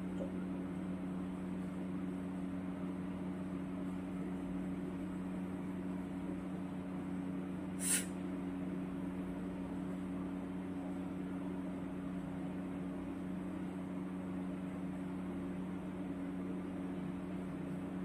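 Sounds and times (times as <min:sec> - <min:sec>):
steady machine hum: 0:00.0 - 0:18.0
short sharp hiss: 0:07.8 - 0:08.2.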